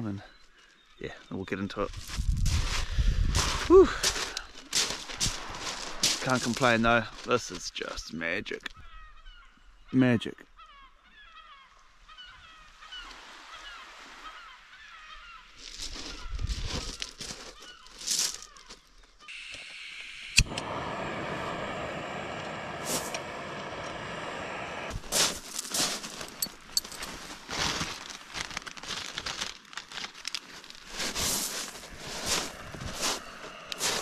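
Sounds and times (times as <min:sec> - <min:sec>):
gas burner running: 0:19.3 - 0:25.0
gas hissing: 0:19.3 - 0:25.1.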